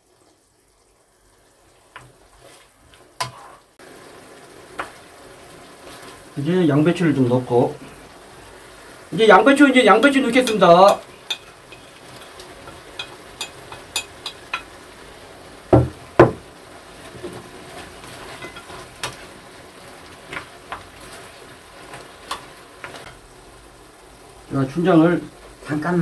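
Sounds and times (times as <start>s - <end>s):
food sizzling in a pan: 0.0s - 26.0s
wooden spatula clicking on pan: 12.9s - 14.7s
loud knocks: 15.7s - 16.5s.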